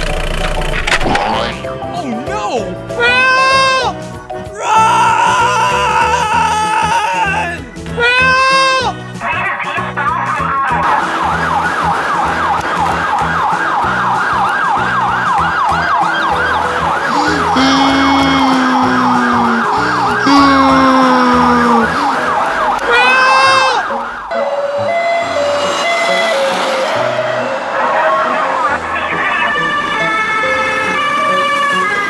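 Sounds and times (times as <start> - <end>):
siren yelping: 11.2 - 32.0.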